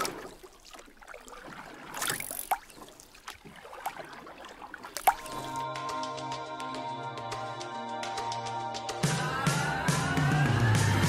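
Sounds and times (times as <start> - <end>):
sharp water drips: 0.0 - 5.7
water splashing and trickling: 0.0 - 5.8.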